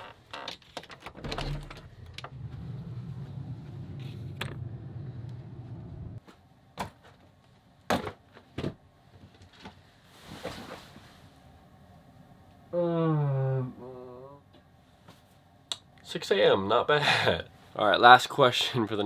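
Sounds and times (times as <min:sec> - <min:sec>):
steady low hum: 0:01.2 - 0:06.7.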